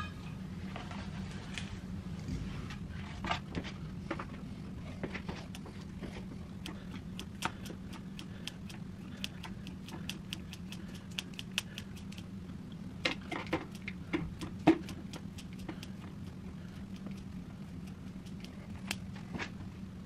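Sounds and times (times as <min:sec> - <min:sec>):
low hum: 0:00.0 - 0:20.0
scissors snipping meat: 0:06.6 - 0:12.3.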